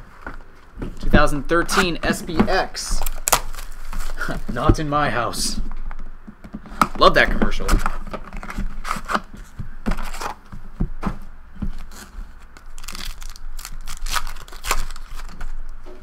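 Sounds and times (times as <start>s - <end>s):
foil wrappers crinkling and tearing: 2.9s - 4.7s, 11.7s - 15.6s.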